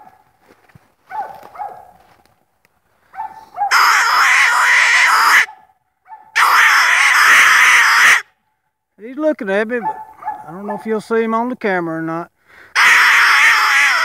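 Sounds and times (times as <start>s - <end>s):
dog barking: 1.0s - 2.1s, 3.1s - 3.9s, 5.3s - 6.5s, 9.8s - 10.9s.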